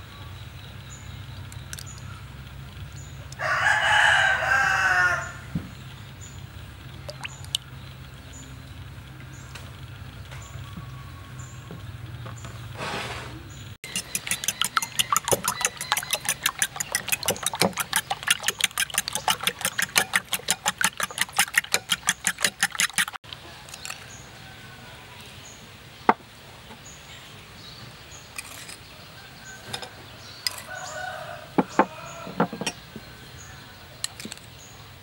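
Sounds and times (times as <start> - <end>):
spoon beating eggs in bowl: 13.8 - 23.2.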